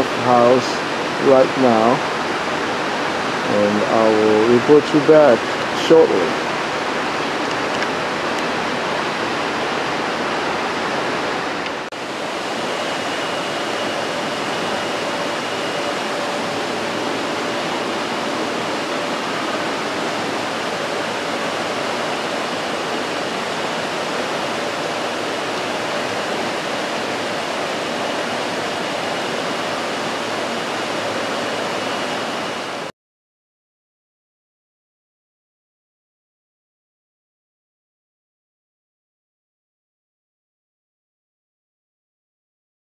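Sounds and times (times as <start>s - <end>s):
river rushing over rocks: 0.0s - 32.9s.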